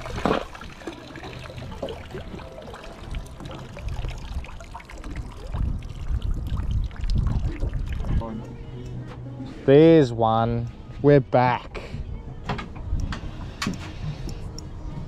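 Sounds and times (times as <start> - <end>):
water dripping and trickling: 0.0 - 8.6.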